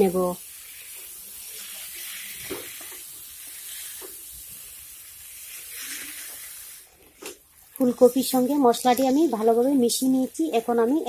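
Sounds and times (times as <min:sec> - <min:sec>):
vegetables sizzling in oil: 0:00.0 - 0:11.0
spatula scraping pan: 0:05.4 - 0:06.7.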